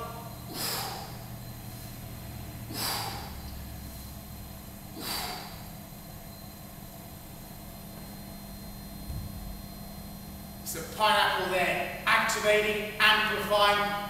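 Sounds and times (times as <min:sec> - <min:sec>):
low machine hum: 0:00.0 - 0:14.0
man exhaling forcefully: 0:00.4 - 0:01.3, 0:02.6 - 0:03.5, 0:04.9 - 0:05.7.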